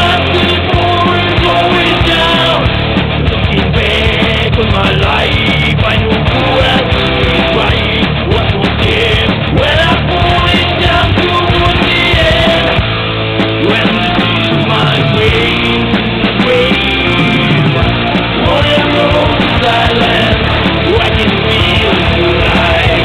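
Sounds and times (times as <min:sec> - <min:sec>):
punk rock band playing: 0:00.0 - 0:23.0.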